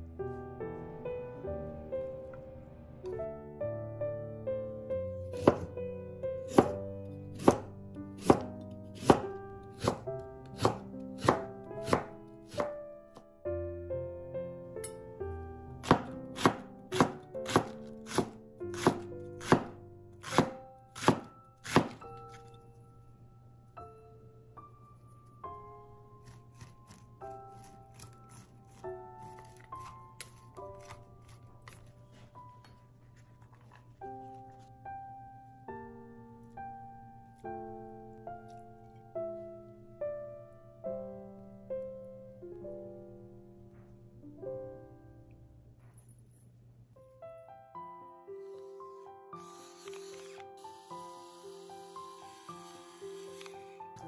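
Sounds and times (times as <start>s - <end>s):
slow piano notes: 0.0s - 54.0s
knife chopping on wooden board: 5.4s - 5.7s, 6.5s - 12.7s, 15.8s - 22.0s, 26.2s - 31.8s.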